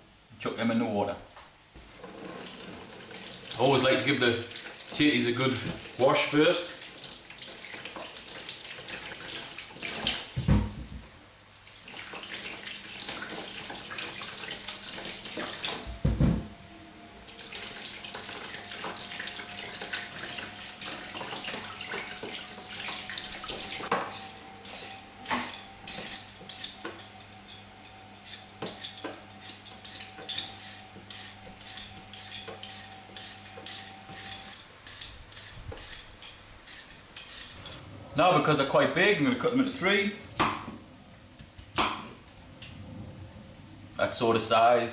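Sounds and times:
peeler scraping potato: 18.4s - 37.8s.

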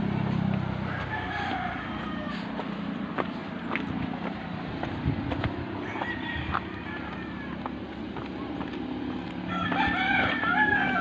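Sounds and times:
footsteps crunching on rocky path: 0.2s - 11.0s
rooster crowing: 0.7s - 2.7s, 5.8s - 7.8s, 9.4s - 11.0s.

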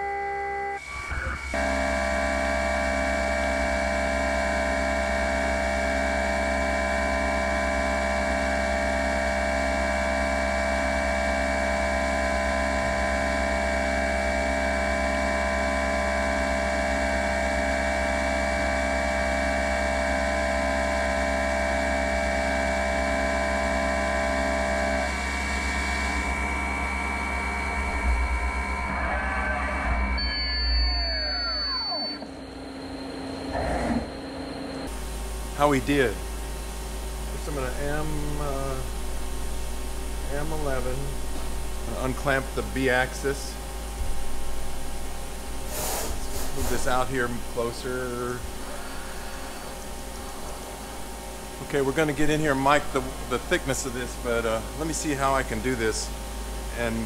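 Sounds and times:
milling machine whine: 0.0s - 57.0s
coolant spray hiss: 45.6s - 49.7s.

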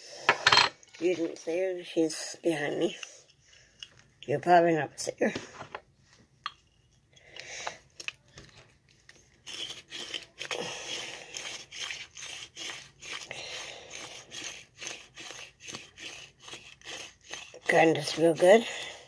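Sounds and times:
herb grinder crunching and scraping: 9.2s - 19.0s.

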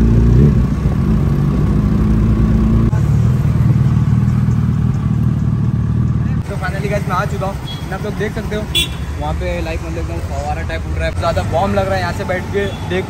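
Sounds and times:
motorcycle engine running: 0.0s - 9.6s.

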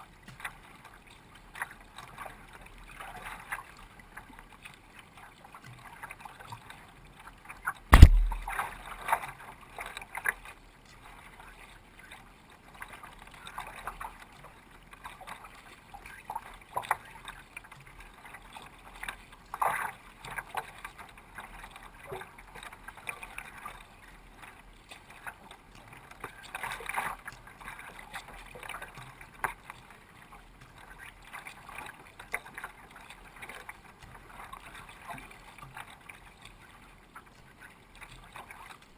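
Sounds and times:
water splashing against kayak hull: 0.0s - 38.9s
sharp knock: 7.9s - 8.5s.

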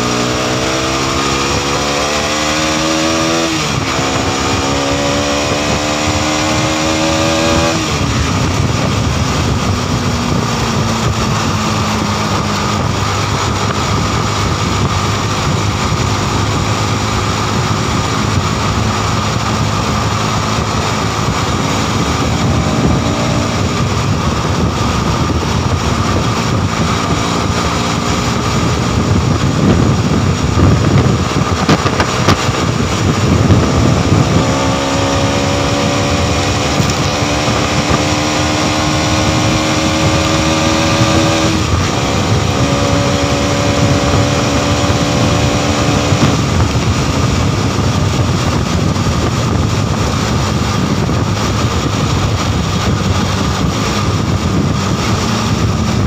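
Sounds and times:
motorcycle engine running: 0.0s - 56.0s
wind noise on microphone: 0.0s - 56.0s.

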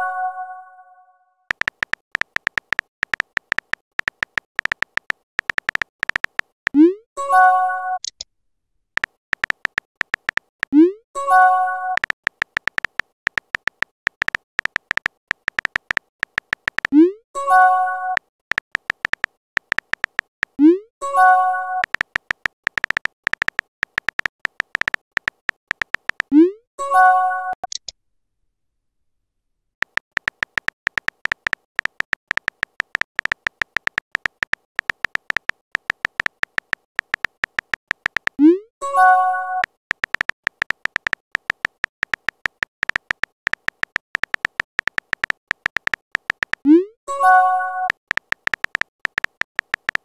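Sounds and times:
keyboard tap clicks: 1.5s - 6.6s, 9.0s - 10.8s, 12.0s - 17.0s, 18.2s - 20.6s, 21.8s - 26.3s, 29.8s - 38.4s, 39.6s - 46.7s, 47.8s - 50.0s.

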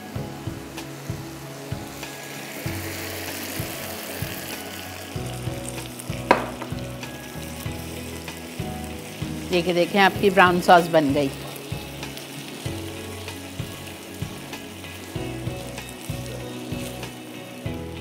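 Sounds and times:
water sizzling in hot pan: 0.0s - 18.0s
spatula knocking against pan: 6.3s - 6.8s.

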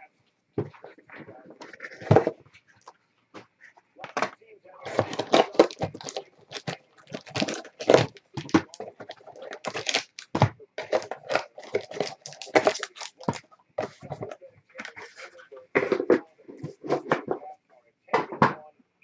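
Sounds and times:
wrapper tearing and crinkling: 4.9s - 13.4s.

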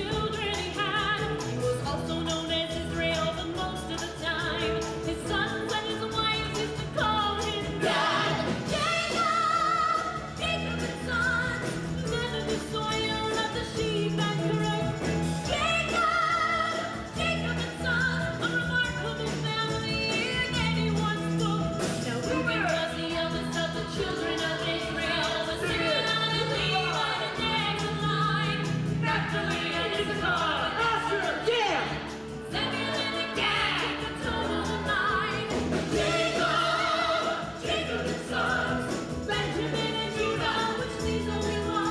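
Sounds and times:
ensemble and choir singing: 6.5s - 10.9s, 23.1s - 41.9s.

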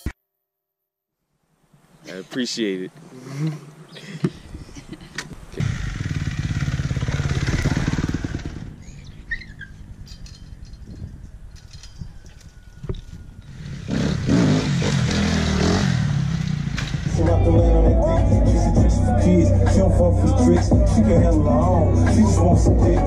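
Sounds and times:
motorcycle engine running: 5.6s - 11.1s, 13.4s - 18.9s.

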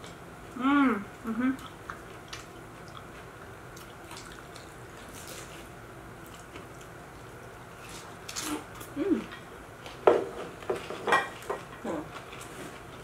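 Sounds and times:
squishy chewing and smacking: 1.6s - 7.2s.

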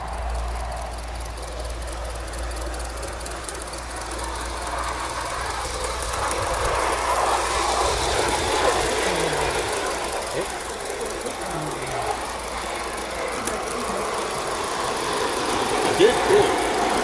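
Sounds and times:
steam hissing: 0.0s - 17.0s
wheels clicking on rail joints: 0.0s - 17.0s.

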